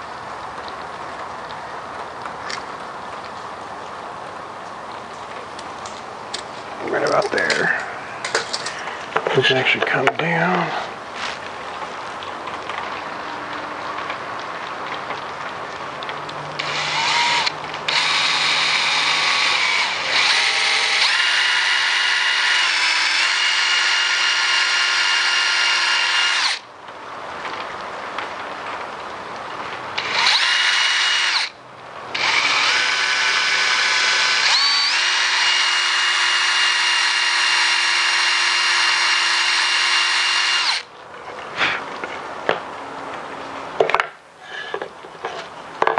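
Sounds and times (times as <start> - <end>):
drill boring into wood: 16.6 - 26.6, 30.0 - 40.9.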